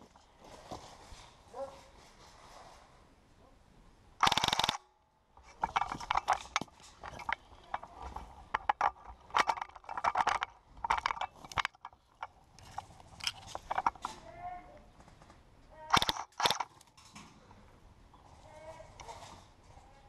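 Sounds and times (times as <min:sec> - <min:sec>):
rifle clicking and ratcheting: 0:04.2 - 0:14.2, 0:15.9 - 0:17.1.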